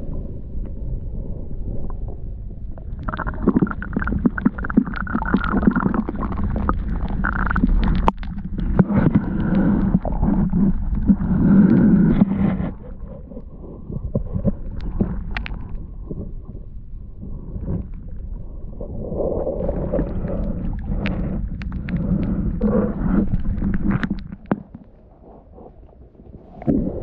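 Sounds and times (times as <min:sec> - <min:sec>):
underwater river water moving: 0:00.0 - 0:27.0.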